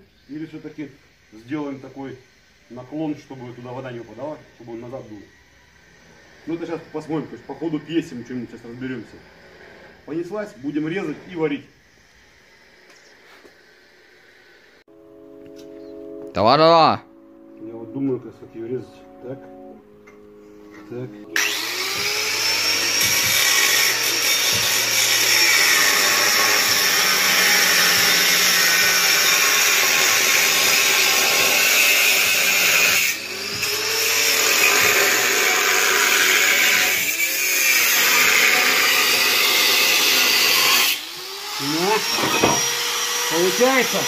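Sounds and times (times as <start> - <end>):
angle grinder cutting metal pipe: 21.3 - 44.0.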